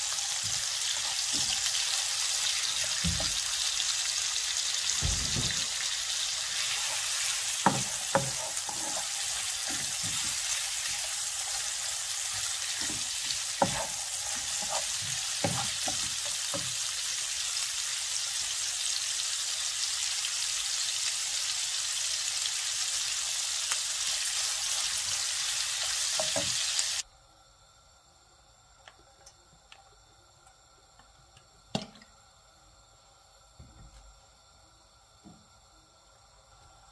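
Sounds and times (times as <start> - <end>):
meat sizzling in oil: 0.0 - 27.0.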